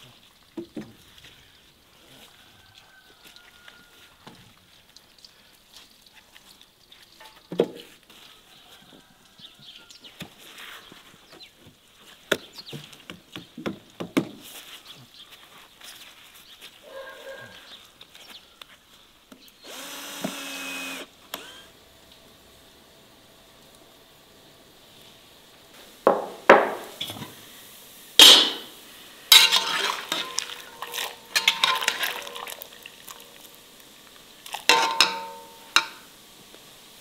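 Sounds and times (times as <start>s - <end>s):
cordless drill running: 19.6s - 21.7s
wooden planks knocking: 26.1s - 27.0s.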